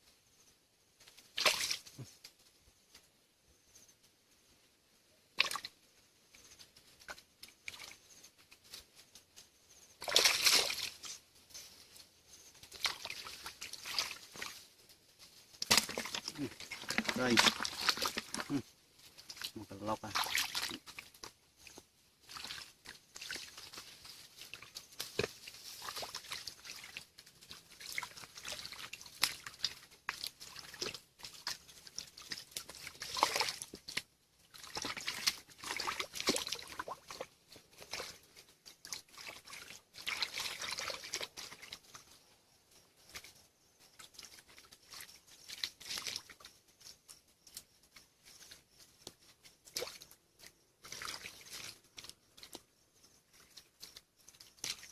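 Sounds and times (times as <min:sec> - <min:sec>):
hands splashing in muddy water: 0:01.3 - 0:02.0, 0:05.4 - 0:05.8, 0:10.0 - 0:11.2, 0:12.6 - 0:14.6, 0:15.6 - 0:42.0, 0:44.0 - 0:46.5, 0:50.8 - 0:52.6.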